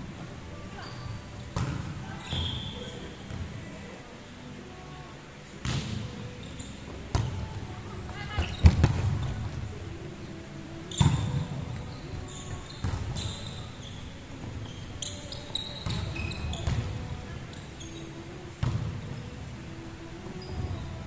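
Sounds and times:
shoes squeaking on wooden court: 0:00.2 - 0:03.7, 0:05.6 - 0:09.7, 0:10.8 - 0:19.2, 0:20.2 - 0:21.0.

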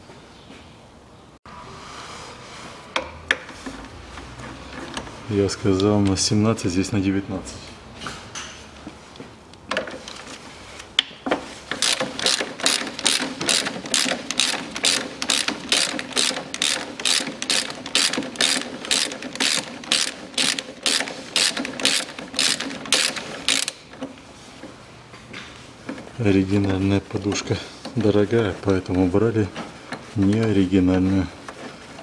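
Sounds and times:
ratchet wrench clicking: 0:11.8 - 0:23.8.

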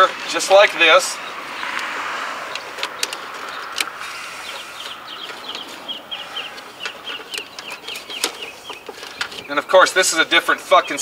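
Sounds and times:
bird chirping: 0:00.0 - 0:01.7, 0:02.5 - 0:11.0
clicks: 0:02.5 - 0:05.8.

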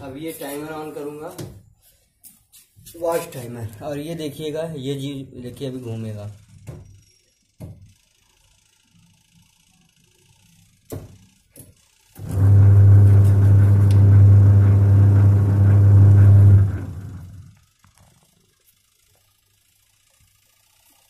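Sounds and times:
washing machine motor humming: 0:10.5 - 0:17.6.

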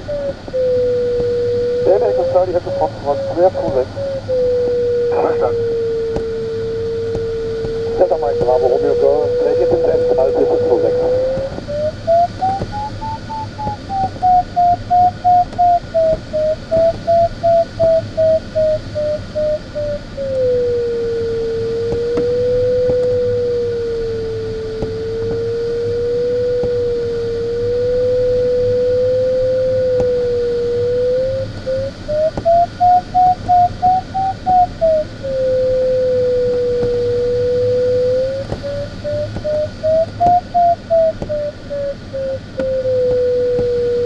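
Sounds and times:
low wavering continuous tone: 0:00.0 - 0:44.0
variometer beeping: 0:00.9 - 0:20.0, 0:36.0 - 0:44.0.

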